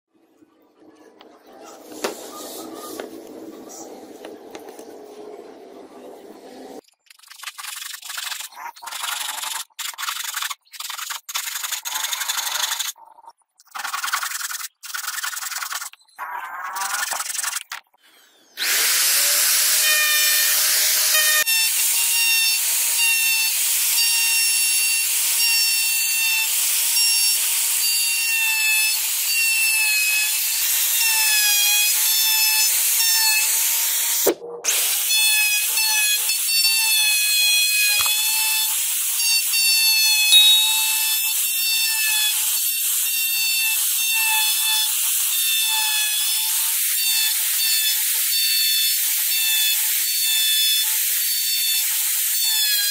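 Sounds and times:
router whining: 18.4s - 27.3s, 39.9s - 42.3s.

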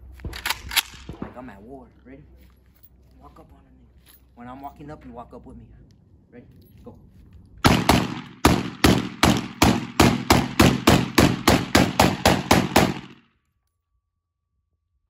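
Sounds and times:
rapid pistol shots: 7.6s - 13.2s.

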